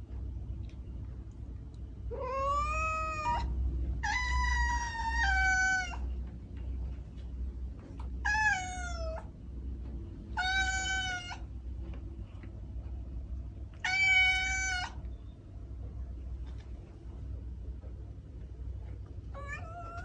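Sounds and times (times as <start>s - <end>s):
steady low hum: 0.0s - 20.0s
kitten meowing: 13.8s - 15.0s.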